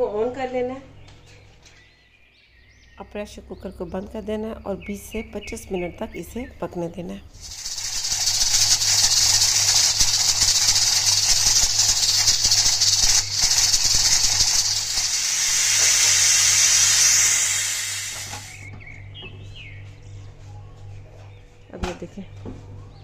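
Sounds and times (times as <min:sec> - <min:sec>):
steam hissing from pressure cooker: 0:07.4 - 0:18.7.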